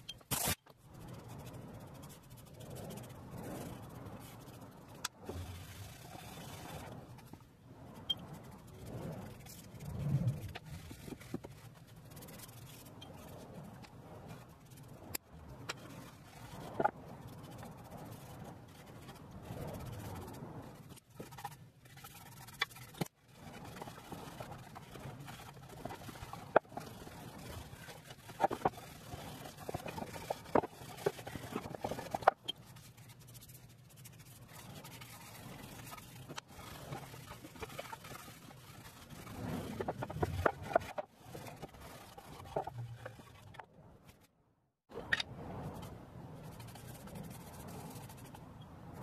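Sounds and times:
cloth and brush scraping wood: 0:15.8 - 0:44.3.

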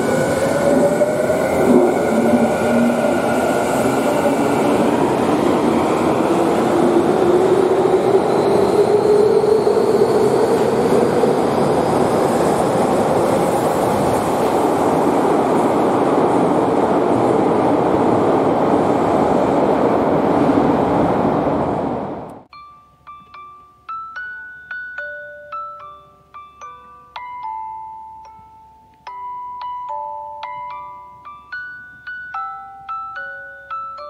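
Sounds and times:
train wheels rumbling: 0:00.0 - 0:22.5.

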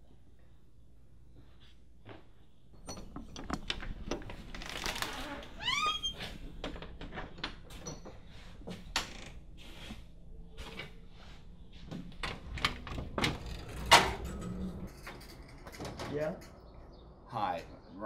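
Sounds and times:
door hardware clicking and knocking: 0:02.8 - 0:04.6
storm door clacking open: 0:12.2 - 0:16.5.

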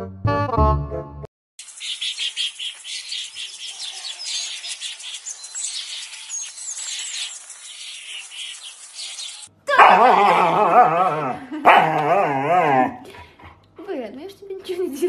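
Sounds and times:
small birds chirping: 0:01.6 - 0:09.6.

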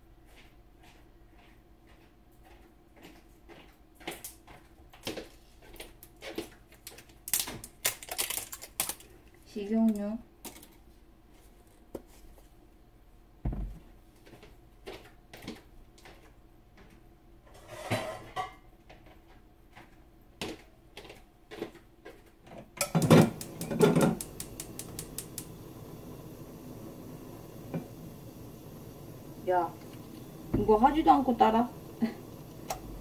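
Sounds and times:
gas flame hissing: 0:22.8 - 0:33.0
stove igniter clicking: 0:22.8 - 0:33.0.

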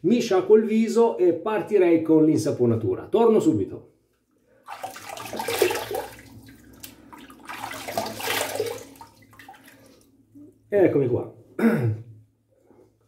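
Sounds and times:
water splashing face rinse: 0:04.6 - 0:10.2.

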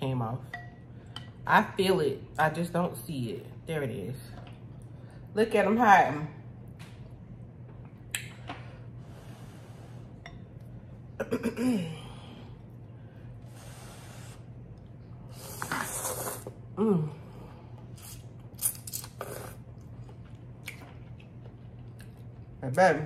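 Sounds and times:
person slurping noodles: 0:15.3 - 0:16.6, 0:19.1 - 0:19.6
person chewing: 0:17.9 - 0:22.6.

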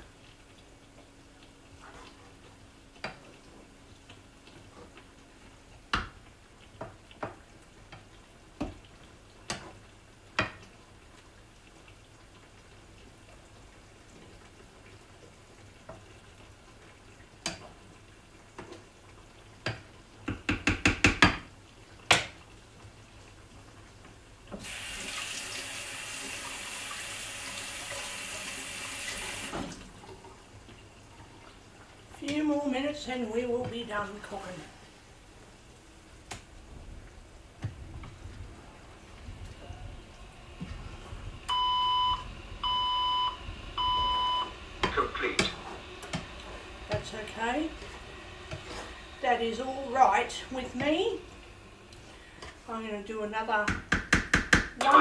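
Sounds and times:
kitchen tap running: 0:24.5 - 0:34.4, 0:37.0 - 0:55.0.

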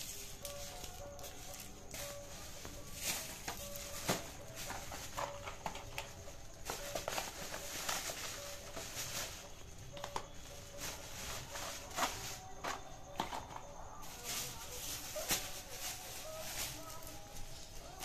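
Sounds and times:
plastic crinkling and rustling: 0:00.0 - 0:18.0
boxes tapping on tiled floor: 0:03.4 - 0:09.3, 0:09.9 - 0:11.0, 0:11.8 - 0:13.7.

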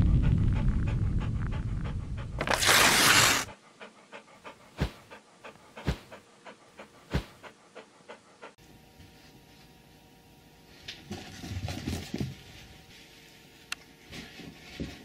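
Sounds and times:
low rumble: 0:00.0 - 0:02.4
dog panting: 0:00.1 - 0:08.6.

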